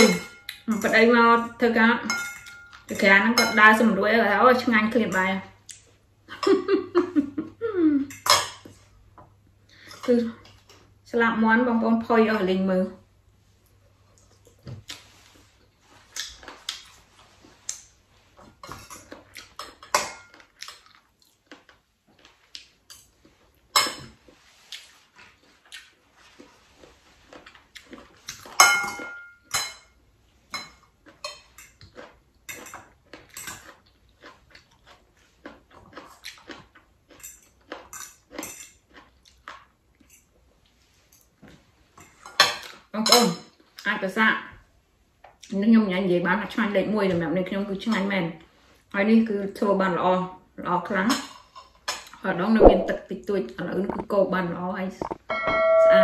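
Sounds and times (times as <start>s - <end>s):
cutlery clinking on ceramic bowl: 2.0s - 3.7s, 8.1s - 8.8s, 28.4s - 31.8s
chewing: 19.0s - 23.5s, 24.3s - 28.6s, 30.8s - 40.8s.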